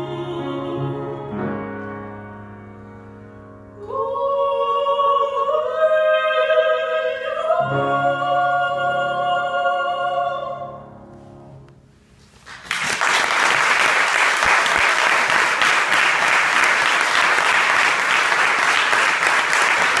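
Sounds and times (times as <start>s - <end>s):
audience applause: 12.5s - 20.0s.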